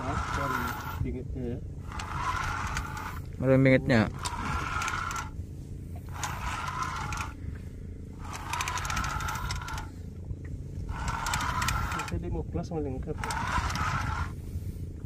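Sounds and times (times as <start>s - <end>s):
spinning reel whirring and clicking: 0.0s - 1.2s, 1.8s - 5.4s, 6.0s - 7.4s, 8.2s - 9.9s, 10.9s - 12.3s, 13.0s - 14.4s
steady low rumble: 0.0s - 15.0s.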